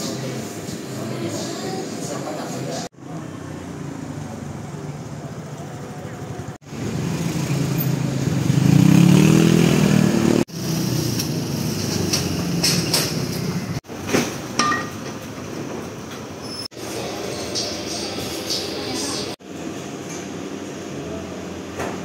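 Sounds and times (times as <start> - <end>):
street noise: 0.0 - 22.0
vehicle engine passing: 3.0 - 13.8.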